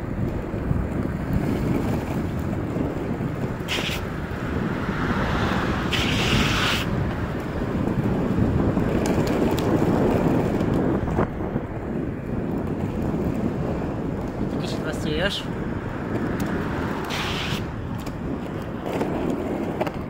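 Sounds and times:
skateboard wheels rolling on asphalt: 0.0 - 20.0
wind buffeting microphone: 0.0 - 20.0.

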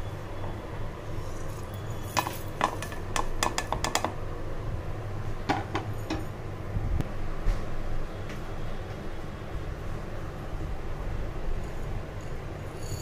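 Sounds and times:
metal jar clinking: 1.2 - 3.3.

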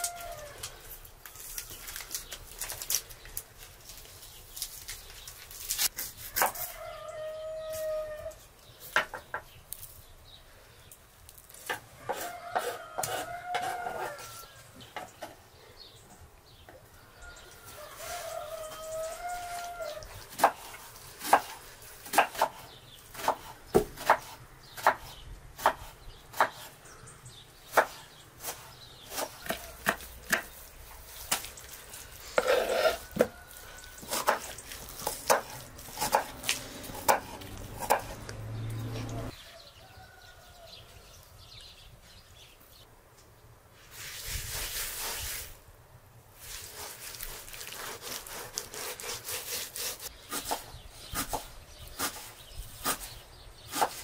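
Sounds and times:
rooster crowing: 0.0 - 0.6, 6.5 - 8.4, 12.0 - 14.8, 16.9 - 20.1, 39.0 - 41.5
knife chopping on wooden board: 20.3 - 26.7, 27.7 - 30.5, 34.0 - 38.4, 53.7 - 54.0.

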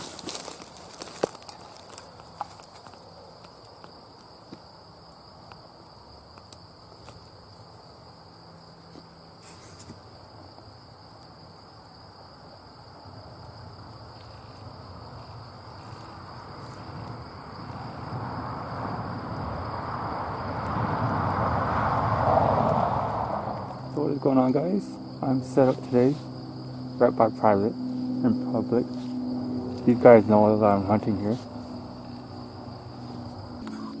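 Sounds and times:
high-pitched insect trill: 0.0 - 34.0.

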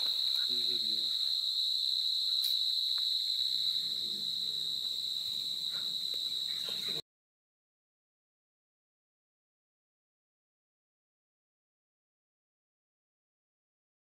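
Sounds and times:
insect chorus high-pitched tone: 0.0 - 7.0.

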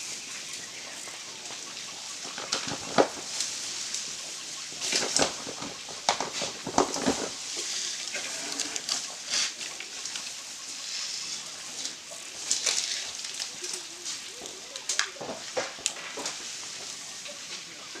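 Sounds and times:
leaves rustling: 0.0 - 18.0
branches cracking and snapping: 2.3 - 4.1, 4.8 - 10.4, 11.8 - 16.4.

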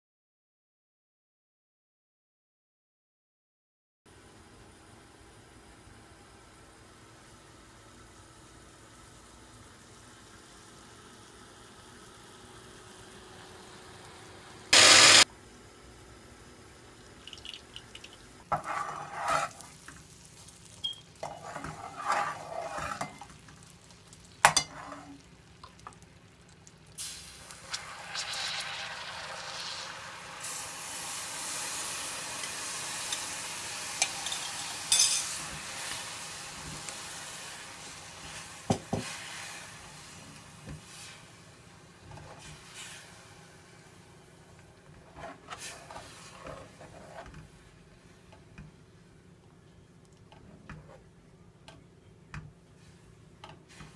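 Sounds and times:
metal spoon scraping a pot: 18.5 - 19.7, 21.2 - 23.3, 24.5 - 25.2, 45.1 - 47.3
liquid hissing in hot pot: 27.0 - 34.9.

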